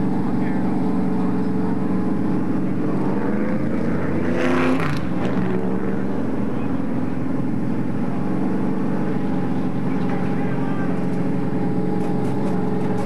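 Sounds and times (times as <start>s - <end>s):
racing car engines droning: 0.0s - 13.0s
race car passing by: 2.6s - 6.9s.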